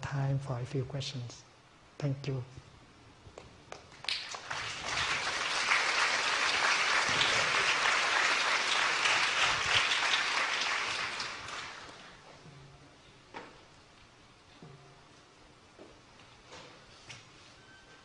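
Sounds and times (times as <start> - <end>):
audience applauding: 3.9 - 12.2.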